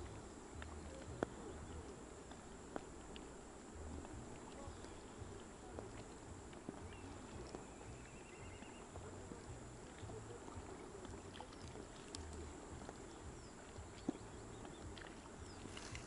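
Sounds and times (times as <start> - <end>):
faint clicks: 0.0 - 3.4, 10.9 - 16.0
small waves lapping: 0.0 - 16.0.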